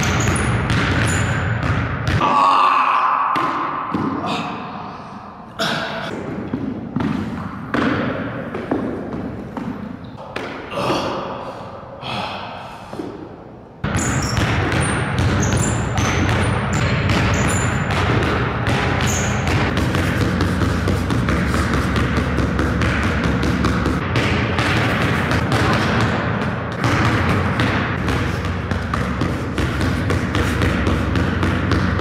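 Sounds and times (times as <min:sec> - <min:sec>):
basketball dribbling on hardwood: 0:00.0 - 0:02.2, 0:13.8 - 0:32.0.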